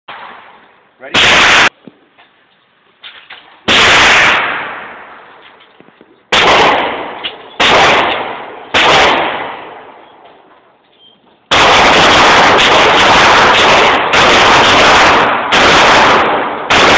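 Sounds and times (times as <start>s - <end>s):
pistol shots echoing: 1.1s - 1.7s, 3.6s - 5.2s, 6.3s - 10.0s, 11.5s - 16.9s
rapid string of gunshots: 1.1s - 1.8s, 3.6s - 5.1s, 6.3s - 9.8s, 11.5s - 16.9s.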